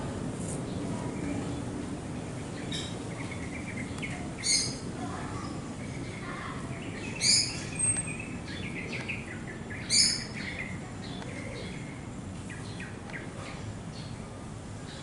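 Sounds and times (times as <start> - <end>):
low background noise: 0.0 - 15.0
soft bird chirps: 2.3 - 4.8, 5.4 - 14.2
loud bird calls: 2.4 - 14.2.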